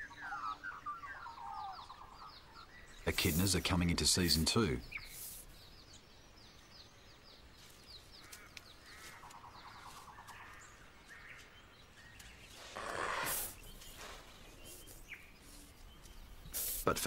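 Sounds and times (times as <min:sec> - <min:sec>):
warbling bird calls: 0:00.0 - 0:17.0.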